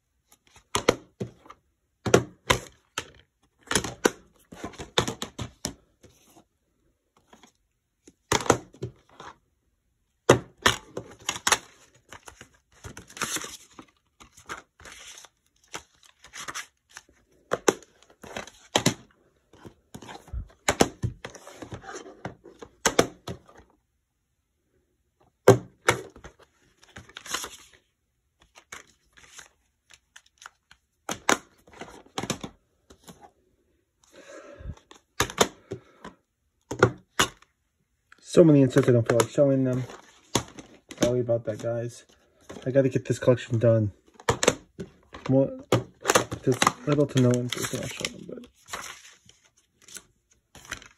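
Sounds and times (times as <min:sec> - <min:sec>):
plastic cases clicking and clacking: 0:00.6 - 0:05.8, 0:34.7 - 0:37.5, 0:44.1 - 0:48.8
paper inserts rustling: 0:10.6 - 0:23.7, 0:38.7 - 0:50.9.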